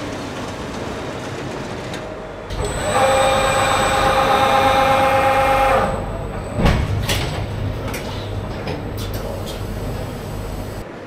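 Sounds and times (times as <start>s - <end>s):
low machine hum: 2.2s - 11.0s
machine whine: 2.4s - 10.8s
machine clunk: 6.2s - 10.8s.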